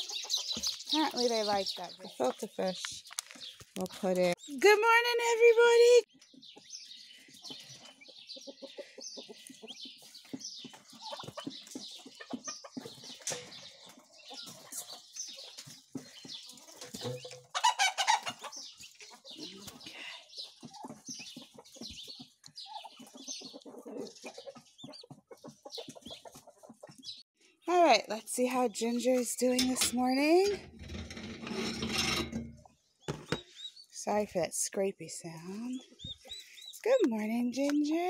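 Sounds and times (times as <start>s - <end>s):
turkey poults peeping: 0.0s - 2.6s, 6.2s - 27.2s
turkey hen clucking: 7.4s - 10.1s, 10.7s - 15.7s, 16.5s - 19.8s, 20.4s - 27.0s.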